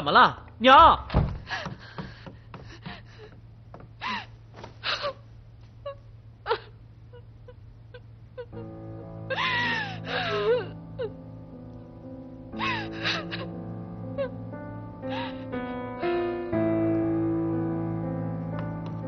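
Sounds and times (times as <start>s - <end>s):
woman sobbing and wailing: 1.4s - 11.3s, 12.5s - 15.6s
soft sad music: 7.9s - 19.0s.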